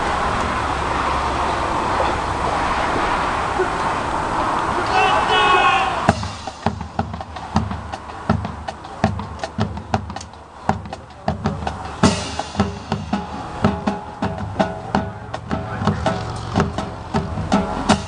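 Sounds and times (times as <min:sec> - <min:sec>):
marching band drums and percussion: 0:04.9 - 0:18.0
cymbal crash: 0:06.0 - 0:07.9, 0:12.0 - 0:18.0
held band notes: 0:06.1 - 0:18.0.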